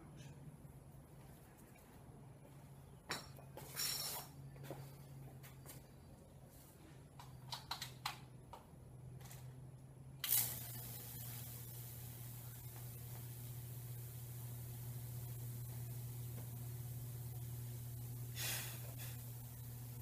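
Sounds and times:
clicks and knocks of handling: 7.2 - 9.5
low hum: 9.2 - 20.0
electric arc hissing: 10.2 - 20.0.

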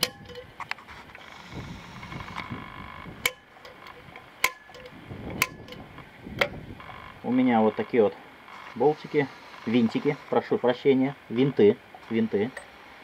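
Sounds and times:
center punch clicking on metal: 3.2 - 5.8.

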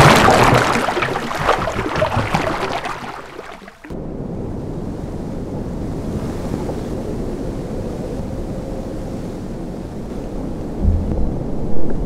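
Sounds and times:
sea waves washing: 0.0 - 3.9.

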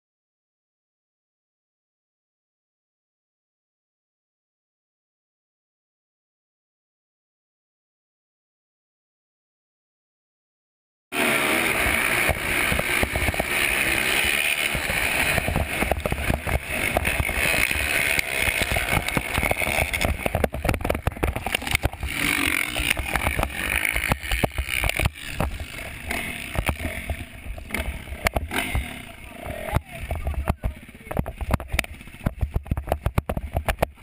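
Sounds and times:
dirt bike engine running hard: 11.2 - 34.0.

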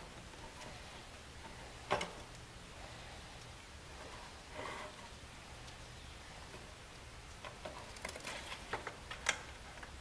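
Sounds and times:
low steady hum: 0.0 - 10.0
soft scrape: 3.9 - 5.2
gloved hands handling parts: 6.4 - 10.0.

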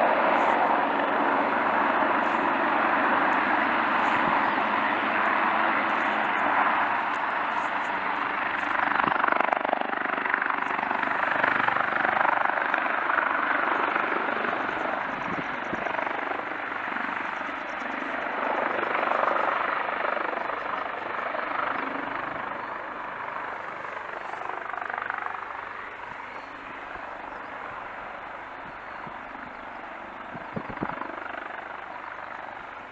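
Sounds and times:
helicopter rotor and engines: 0.0 - 32.9.

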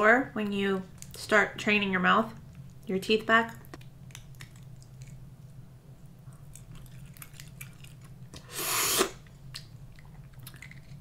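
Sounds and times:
loud slurp: 8.4 - 9.2.

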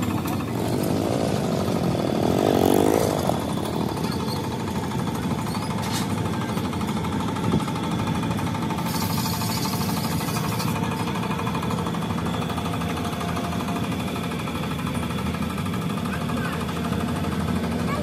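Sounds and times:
machine rattling: 0.0 - 6.2.

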